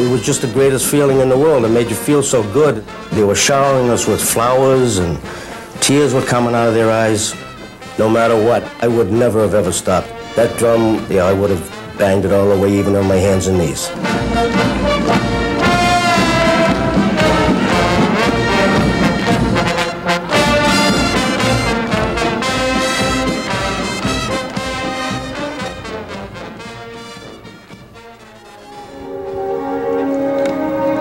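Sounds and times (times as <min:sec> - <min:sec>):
brass marching band playing: 0:00.0 - 0:31.0.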